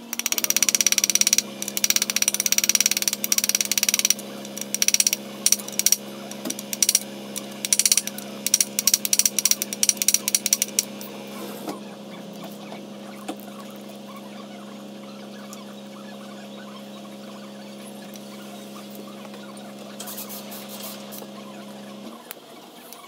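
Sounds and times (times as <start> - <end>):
ratchet wrench clicking: 0.0 - 11.0
low hum: 0.0 - 22.1.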